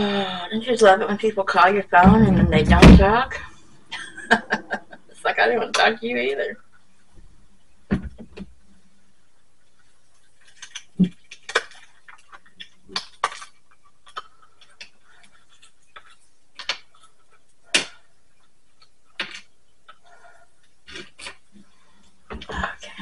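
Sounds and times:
low thump: 0:02.0 - 0:03.4.

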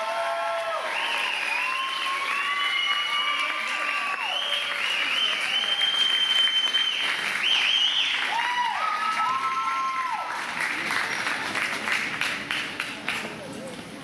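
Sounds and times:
high-pitched whoops: 0:00.0 - 0:06.9, 0:07.5 - 0:10.3
audience applauding and cheering: 0:00.0 - 0:13.2.

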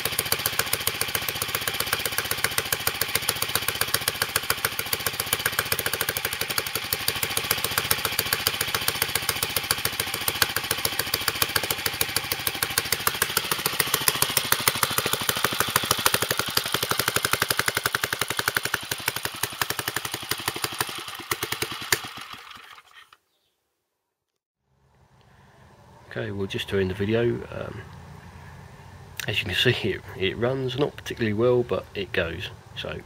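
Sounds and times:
stationary engine running: 0:00.0 - 0:22.9.

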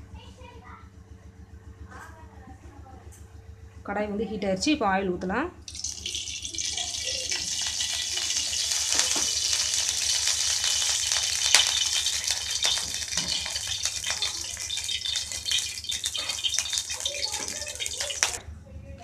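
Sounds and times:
oil sizzling and crackling: 0:05.7 - 0:18.4.

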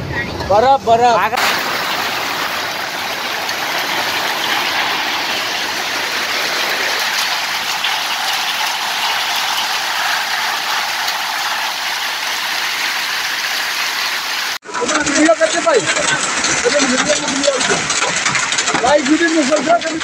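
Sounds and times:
heavy rain hissing: 0:01.4 - 0:14.6
hailstones ticking: 0:01.4 - 0:20.0.

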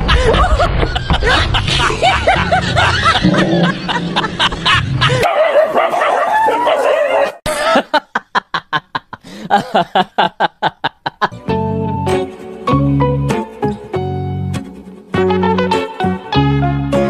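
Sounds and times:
laugh-like pulses: 0:00.0 - 0:05.3
dog barking and yelping: 0:05.1 - 0:07.5.

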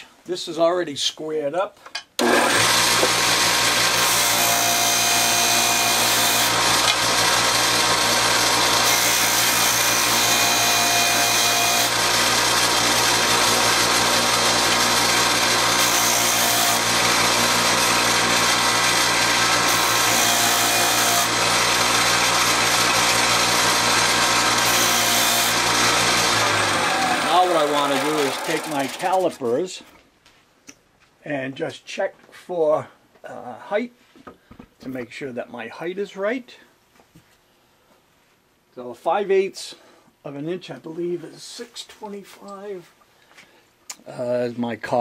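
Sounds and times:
sander motor hum: 0:02.2 - 0:29.3.

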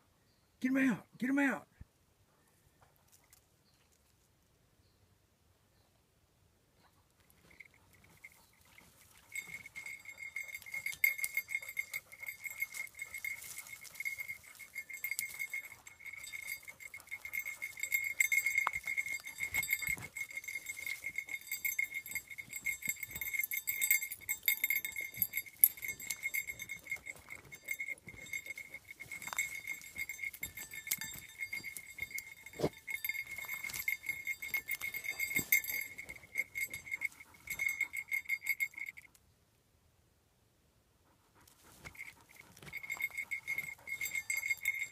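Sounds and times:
twigs and needles crackling: 0:07.4 - 0:38.6.

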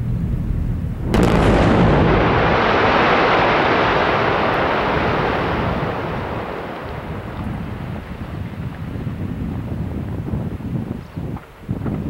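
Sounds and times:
long rumble: 0:00.0 - 0:11.0
explosive blast crack: 0:01.0 - 0:10.2.

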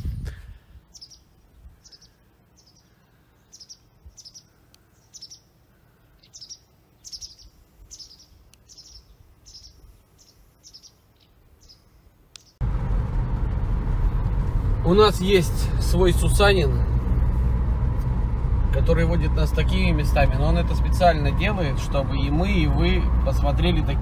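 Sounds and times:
small bird chirping: 0:00.9 - 0:12.6
loud low rumble: 0:12.6 - 0:24.0.

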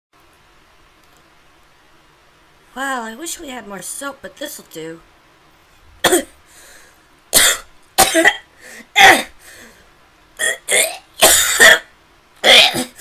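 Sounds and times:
person gagging and coughing: 0:06.0 - 0:06.4, 0:07.4 - 0:09.4, 0:10.4 - 0:13.0.

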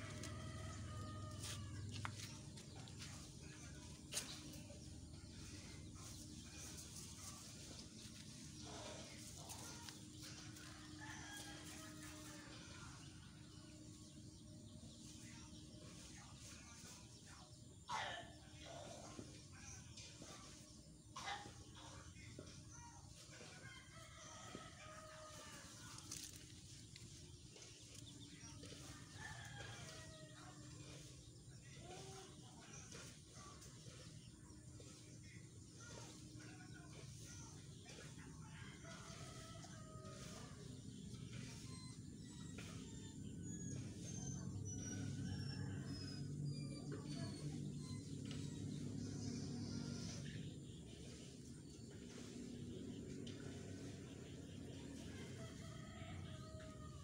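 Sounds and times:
faint outdoor background: 0:00.0 - 0:57.0.

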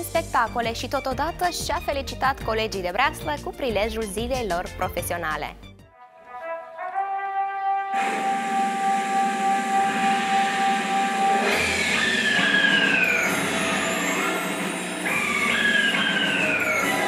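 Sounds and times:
held musical note: 0:05.9 - 0:17.0
falling whistle-like tones: 0:08.0 - 0:17.0.

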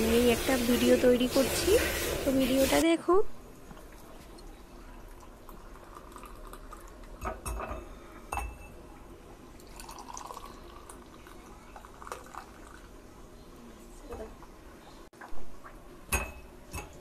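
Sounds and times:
tea trickling into glass: 0:05.1 - 0:07.0, 0:09.6 - 0:12.9.

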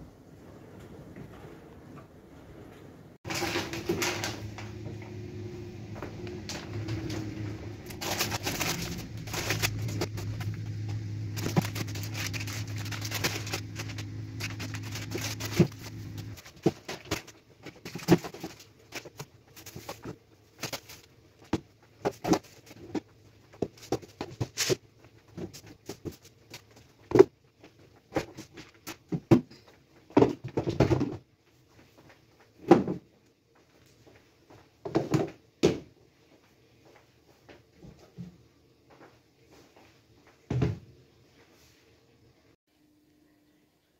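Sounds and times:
low steady hum: 0:00.0 - 0:28.6, 0:42.0 - 0:43.9
containers and cans clattering: 0:03.3 - 0:04.9, 0:06.5 - 0:10.5, 0:11.3 - 0:23.0.

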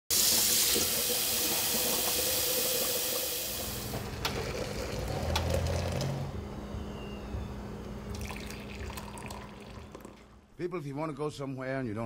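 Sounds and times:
water pouring into glass: 0:00.4 - 0:06.1, 0:08.1 - 0:10.4
tap running into kettle: 0:00.4 - 0:06.2.

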